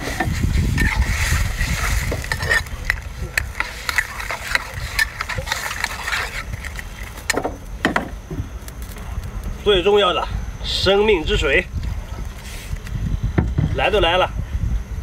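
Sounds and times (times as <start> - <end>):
metal ladle scraping and clinking: 0.0 - 7.4
seafood sizzling in a wok: 0.0 - 7.4.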